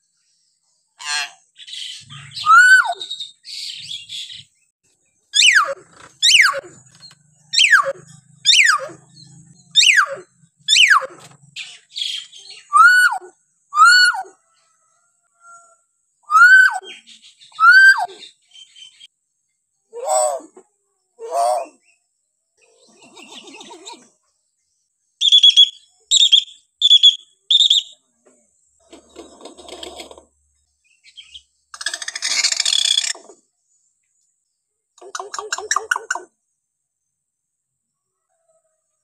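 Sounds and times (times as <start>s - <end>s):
myna bird calling: 1.0s - 4.4s, 5.3s - 14.4s, 22.6s - 24.1s, 35.0s - 36.3s.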